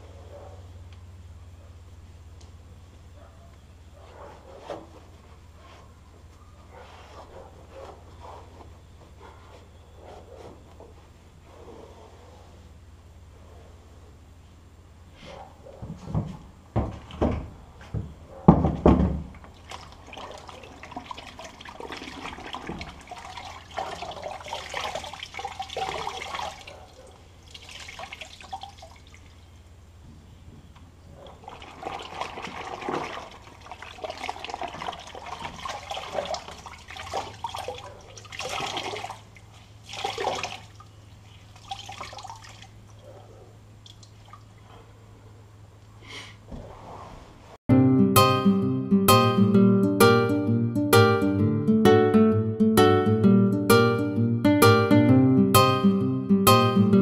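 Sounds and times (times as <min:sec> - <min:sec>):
water sloshing in a bucket: 0:19.3 - 0:29.6, 0:31.1 - 0:44.9.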